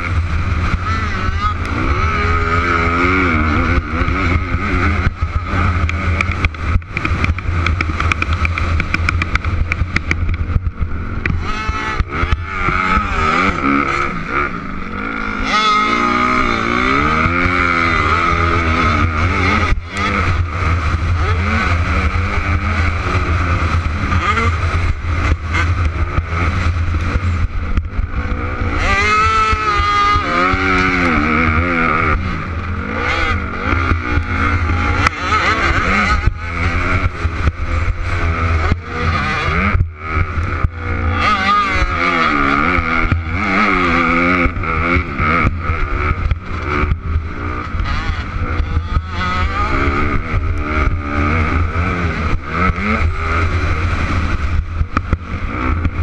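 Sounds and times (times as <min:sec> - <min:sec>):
low rumble: 0:00.0 - 0:56.0
motocross bike engine revving: 0:00.0 - 0:56.0.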